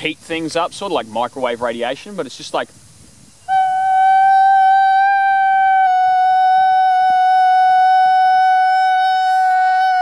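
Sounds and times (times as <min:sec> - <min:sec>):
man holding a high sung note: 0:03.4 - 0:10.0.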